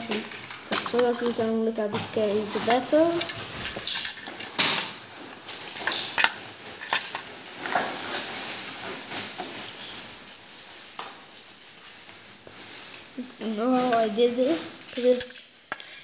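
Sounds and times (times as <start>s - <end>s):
plastic bricks clicking: 0.1s - 1.5s.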